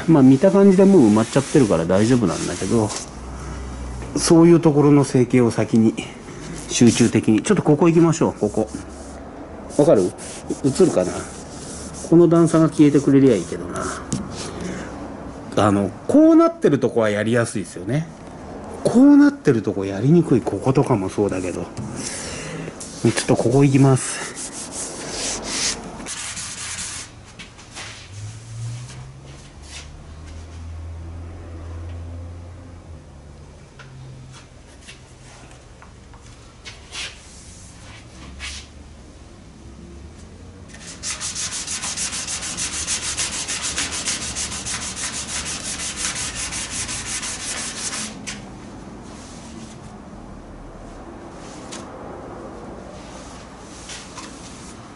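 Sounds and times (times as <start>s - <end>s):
sandpaper rubbing on car body: 0.4s - 3.0s, 8.3s - 14.5s, 22.8s - 27.2s, 40.8s - 48.4s.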